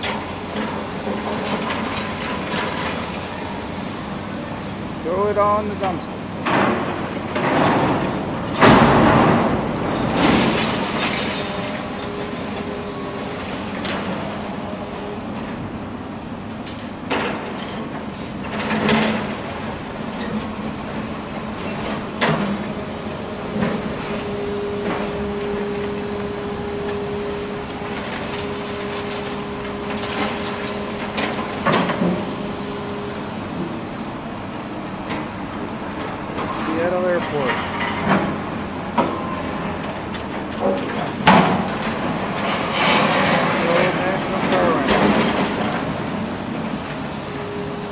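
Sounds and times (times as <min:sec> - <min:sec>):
machinery rumble: 0:00.0 - 0:47.9
traffic: 0:00.0 - 0:47.9
debris knocking and clanking: 0:06.4 - 0:12.7.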